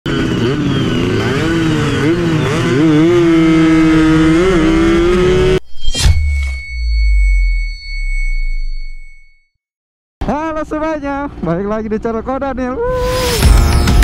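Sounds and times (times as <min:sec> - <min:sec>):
two-stroke motorcycle engine revving: 0:00.1 - 0:05.6
brief whoosh: 0:05.6 - 0:09.0.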